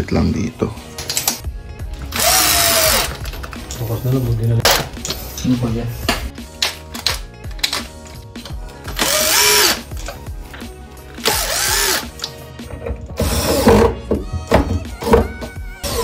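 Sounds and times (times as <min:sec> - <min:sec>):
background music: 0:00.0 - 0:16.0
cordless drill driving screws: 0:02.2 - 0:03.1, 0:09.0 - 0:09.8, 0:11.2 - 0:12.1.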